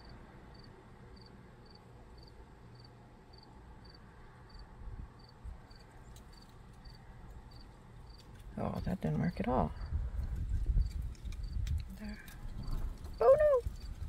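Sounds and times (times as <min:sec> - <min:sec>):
cricket chirping: 0:00.0 - 0:08.2, 0:10.8 - 0:11.6.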